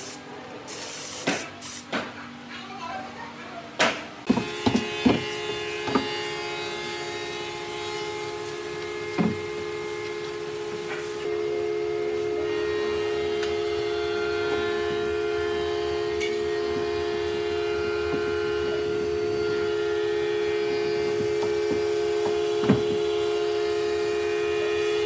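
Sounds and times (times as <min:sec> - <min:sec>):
power tool motor humming: 0:04.3 - 0:11.3, 0:15.8 - 0:25.0.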